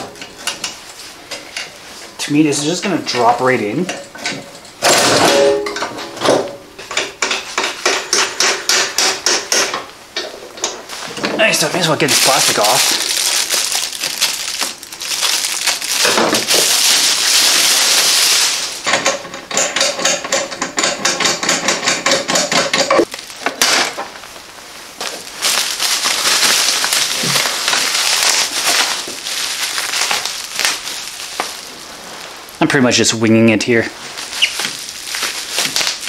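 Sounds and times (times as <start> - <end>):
bubble wrap crinkling: 10.8 - 18.9, 23.0 - 36.0.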